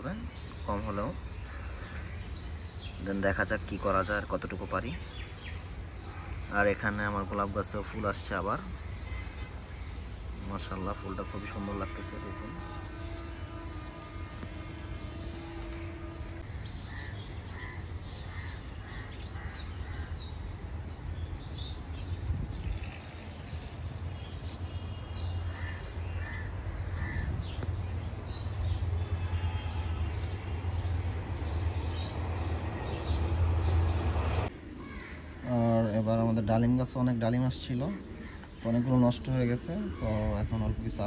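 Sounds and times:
crow cawing: 1.4 - 2.7, 5.9 - 6.6, 8.8 - 9.9, 11.8 - 20.5, 25.4 - 27.6, 34.7 - 35.5, 38.0 - 38.6.

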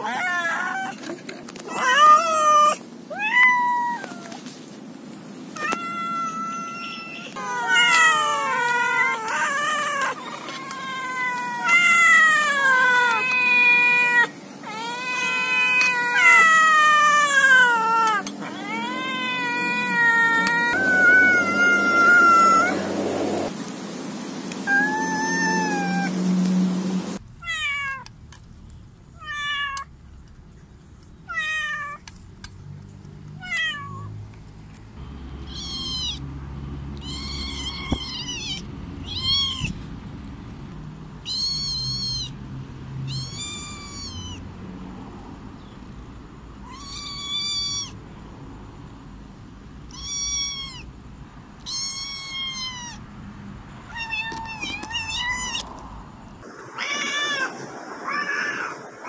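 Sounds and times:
cat meowing: 0.0 - 1.1, 1.7 - 4.4, 5.6 - 22.8, 24.6 - 26.1, 27.4 - 28.1, 31.3 - 32.0, 33.4 - 34.1, 35.4 - 36.2, 37.0 - 39.8, 41.2 - 42.4, 43.0 - 44.4, 46.6 - 48.0, 49.9 - 50.9, 51.6 - 53.0, 53.8 - 55.8, 56.4 - 59.0
kitten meowing: 1.7 - 4.4, 5.6 - 22.8, 24.6 - 26.1, 35.4 - 36.2, 37.0 - 39.8, 41.2 - 42.4, 43.0 - 44.4, 46.6 - 48.0, 49.9 - 50.9, 51.6 - 53.0, 53.9 - 55.7.

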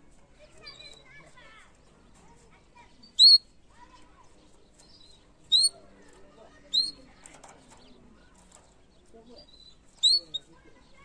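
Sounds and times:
canary chirping: 2.8 - 3.5, 4.5 - 11.0.

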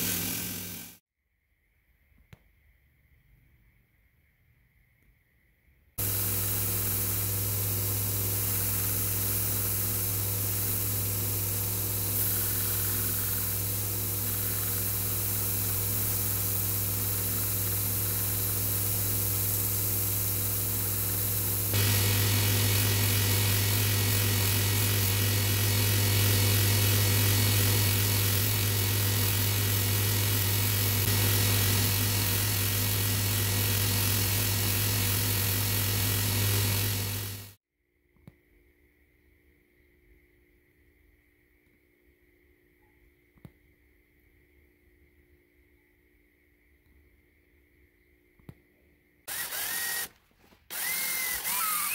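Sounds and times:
belt grinder grinding wood: 0.0 - 1.0, 6.0 - 37.6, 49.3 - 51.9.

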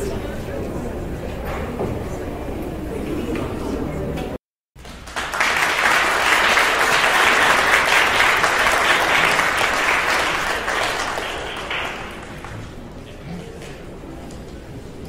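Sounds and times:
audience applause: 4.8 - 13.1.

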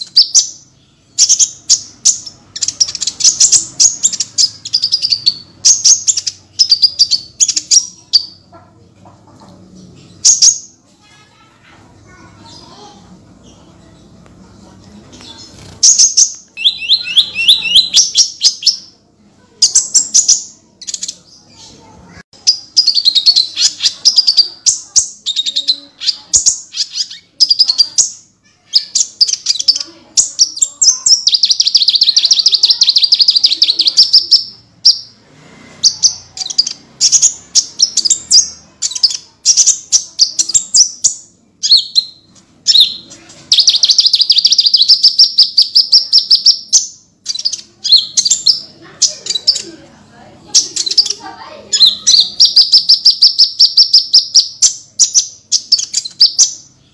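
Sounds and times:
songbird singing rapid trills: 15.6 - 18.8, 22.4 - 35.0, 35.8 - 49.6.

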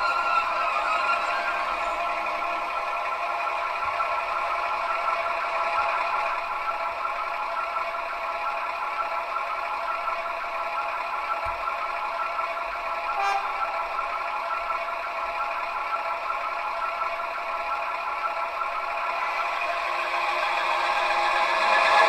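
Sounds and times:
model diesel locomotive running: 0.0 - 22.0.

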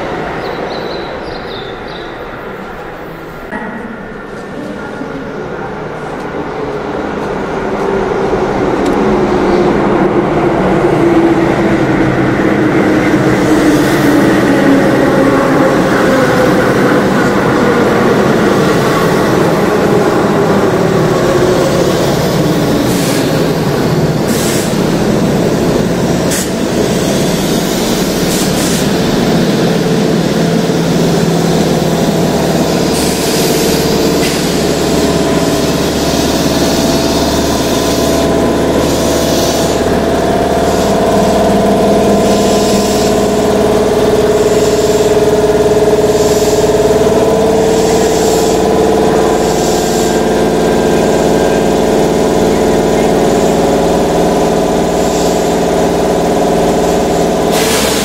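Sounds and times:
electric train equipment humming: 0.0 - 58.0
air compressor droning: 8.8 - 58.0
short hiss of air: 57.5 - 58.0.

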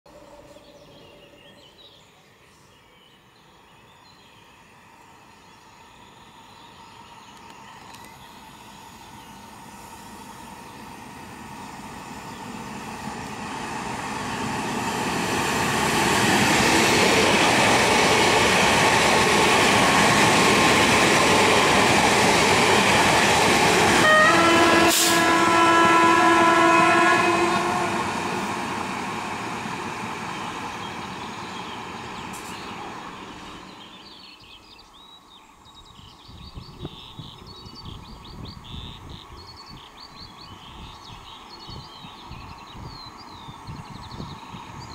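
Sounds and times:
faint birdsong: 0.1 - 22.0, 29.8 - 44.9
train wheel and rail noise: 0.1 - 44.9
train horn: 24.0 - 28.6.

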